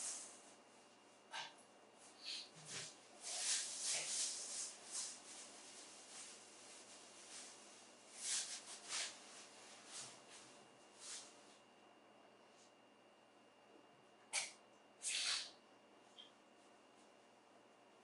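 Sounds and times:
faint rustling and scratching: 0:00.0 - 0:11.7.

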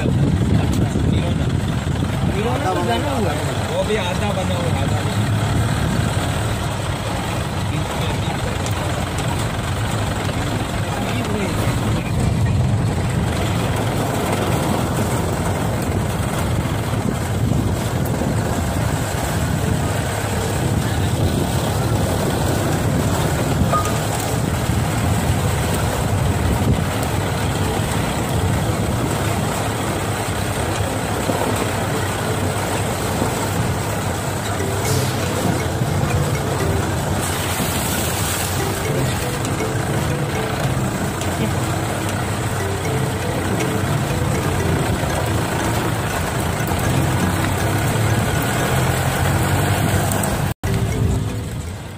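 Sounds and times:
off-road vehicle engine: 0:00.0 - 0:51.9.

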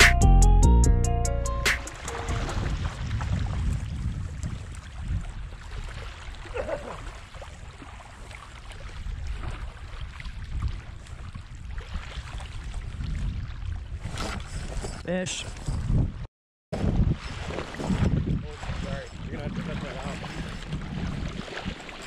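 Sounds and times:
wind rumbling on microphone: 0:02.3 - 0:22.0.

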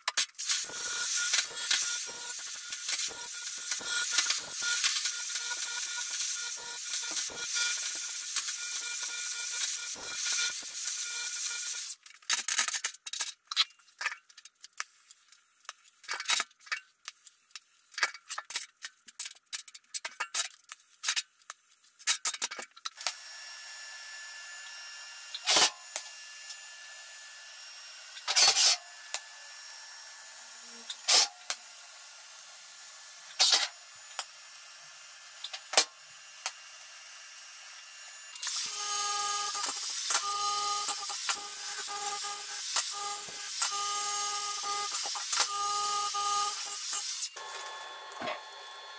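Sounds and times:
welding hiss with cracks: 0:00.0 - 0:23.2, 0:28.1 - 0:29.4, 0:30.2 - 0:48.9
angle grinder whining: 0:00.4 - 0:12.0, 0:23.0 - 0:48.9.

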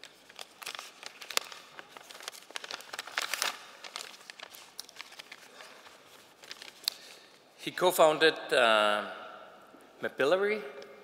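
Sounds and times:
paper crinkling and rustling: 0:00.0 - 0:07.1.

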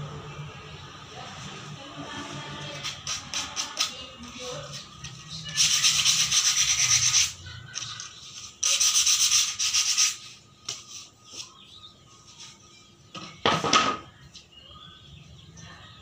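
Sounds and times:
sandpaper scrubbing wood: 0:05.5 - 0:07.4, 0:08.3 - 0:10.4.

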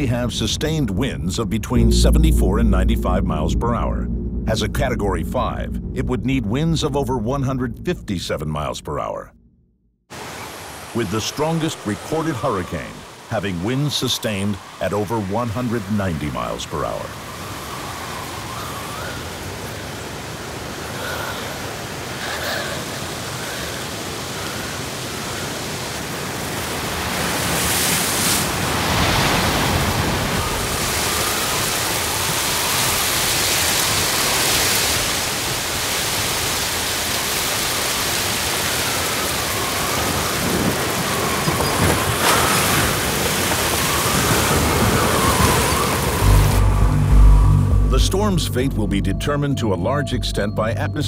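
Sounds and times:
heavy rain: 0:10.1 - 0:48.0
hurricane wind: 0:10.1 - 0:48.0
wavering whistling tones: 0:39.0 - 0:48.1.

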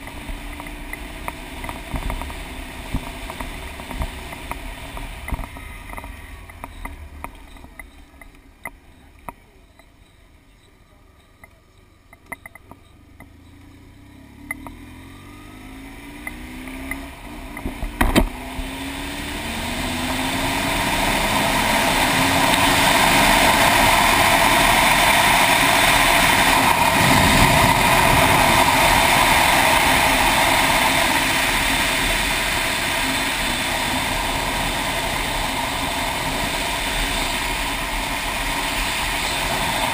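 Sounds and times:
wind and road rush: 0:00.0 - 0:10.7, 0:11.8 - 0:39.9
ticks: 0:00.0 - 0:14.8, 0:16.2 - 0:18.3
motorcycle engine accelerating: 0:00.0 - 0:39.9.

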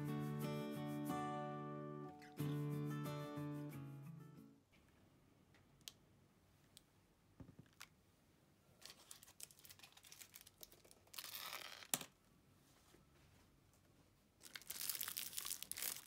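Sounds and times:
plastic crinkling and tearing: 0:08.8 - 0:12.0, 0:14.4 - 0:16.0.

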